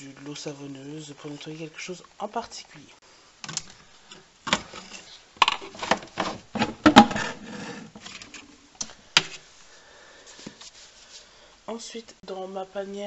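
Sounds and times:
plastic bottles clattering on shelf: 0:04.5 - 0:08.5.

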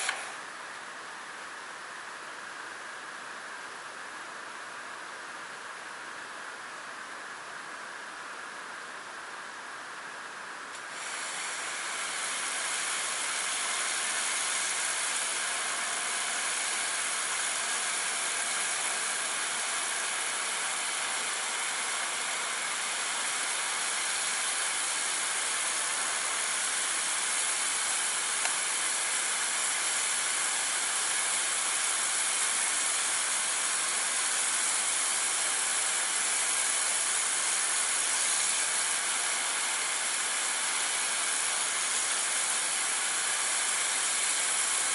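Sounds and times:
pressure washer spraying concrete: 0:00.0 - 0:00.3, 0:10.8 - 0:44.9.

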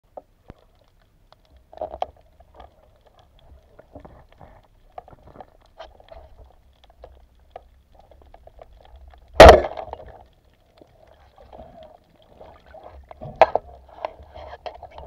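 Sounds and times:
faint underwater crackling: 0:00.0 - 0:15.0
speargun firing underwater: 0:09.4 - 0:10.0.

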